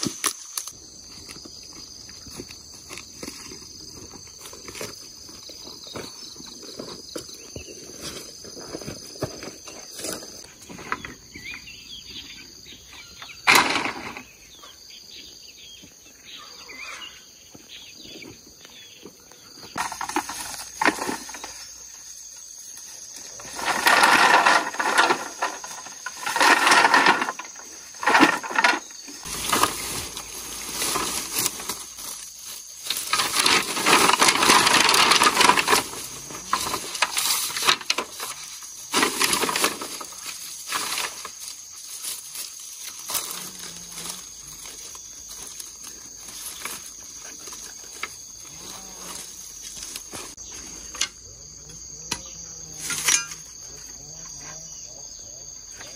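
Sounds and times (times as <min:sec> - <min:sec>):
dry leaves and grass rustling: 0:00.0 - 0:14.6, 0:17.5 - 0:55.9
bamboo poles knocking together: 0:13.4 - 0:14.3, 0:19.8 - 0:21.6, 0:23.4 - 0:30.0, 0:32.8 - 0:41.5.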